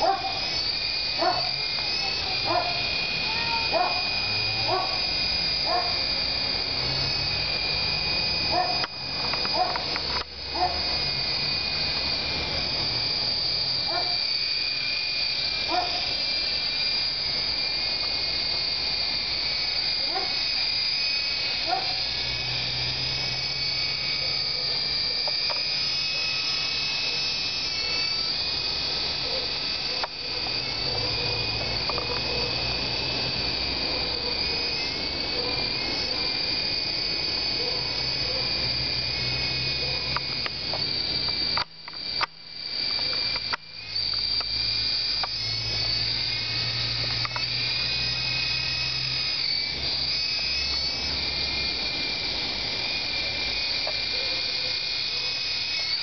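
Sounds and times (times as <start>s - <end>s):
toy helicopter rotors whining: 0.0s - 56.0s.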